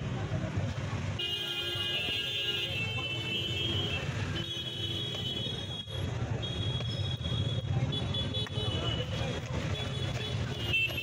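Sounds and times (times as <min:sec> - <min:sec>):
road traffic hum: 0:00.0 - 0:11.0.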